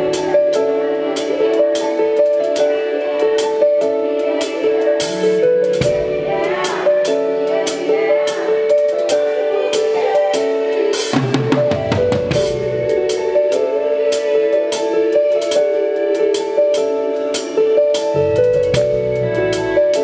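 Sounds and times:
drum kit beat: 0.0 - 20.0
bass guitar: 18.1 - 20.0.

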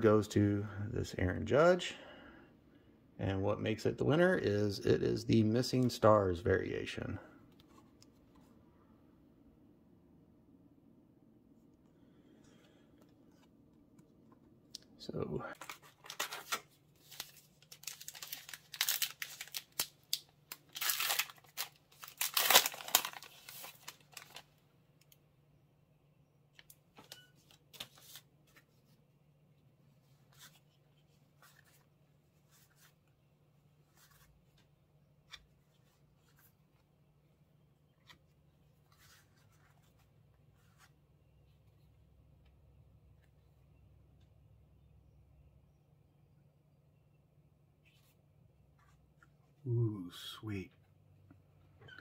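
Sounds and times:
wrapper torn and crinkled: 15.6 - 24.5
cards being flipped: 27.4 - 28.9.

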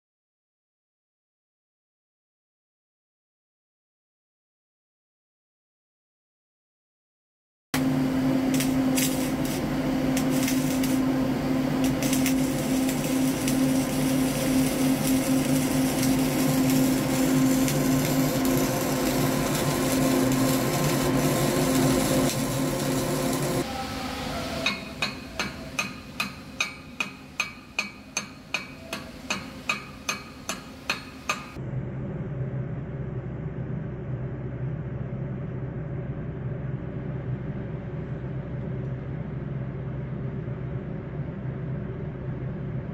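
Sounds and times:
welding arc crackling: 7.8 - 23.7
welding machine hum: 7.8 - 31.6
sharp metallic taps: 24.7 - 31.6.

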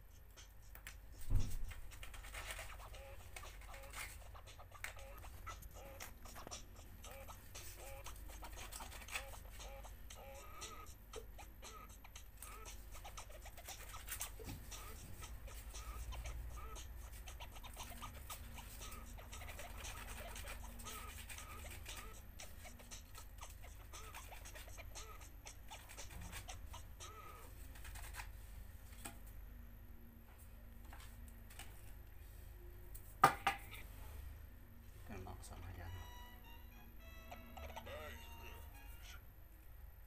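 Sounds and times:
sandpaper scratching plastic: 0.4 - 9.8, 12.4 - 28.4.

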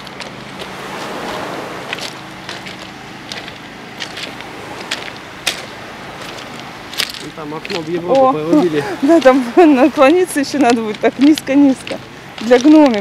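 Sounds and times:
surf on pebble beach: 0.0 - 13.0
wind: 0.0 - 13.0.

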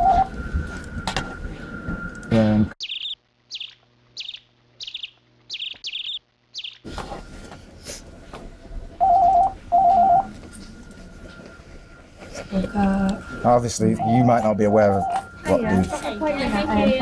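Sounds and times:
desk telephone ringing: 0.0 - 2.3, 9.0 - 17.0
room noise: 0.0 - 17.0
short high bird-like chirps: 2.8 - 6.8.

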